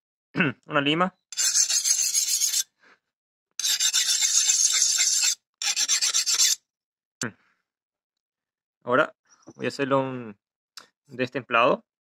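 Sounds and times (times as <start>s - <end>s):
file rasping on metal blade: 1.3s - 2.7s, 3.6s - 6.6s.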